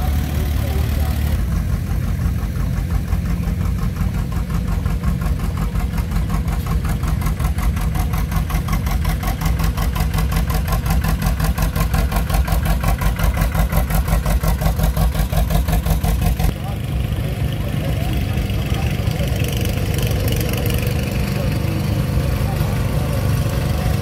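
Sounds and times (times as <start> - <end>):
tractor popping exhaust: 0.0 - 16.5.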